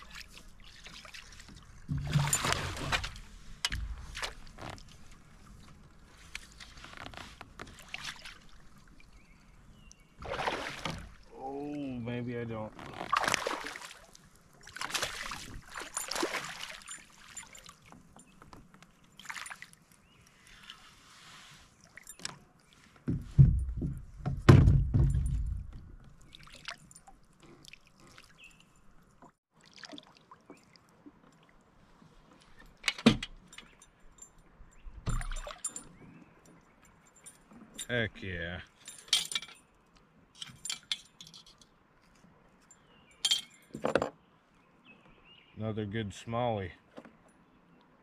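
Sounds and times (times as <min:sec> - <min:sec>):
water sloshing: 0:00.0 - 0:21.0, 0:21.6 - 0:38.0
knocks against kayak: 0:23.1 - 0:25.6.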